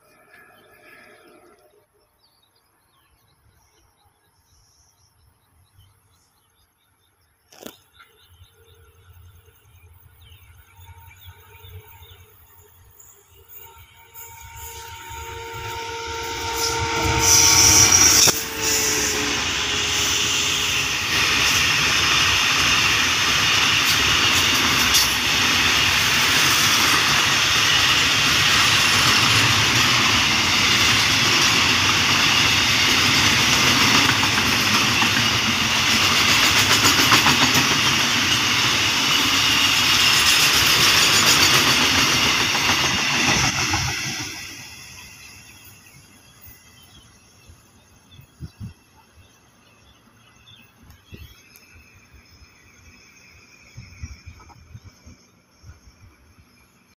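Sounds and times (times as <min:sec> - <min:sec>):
locomotive engine tone passing: 0:08.3 - 0:48.2
train wheels clattering on rails: 0:19.6 - 0:45.9.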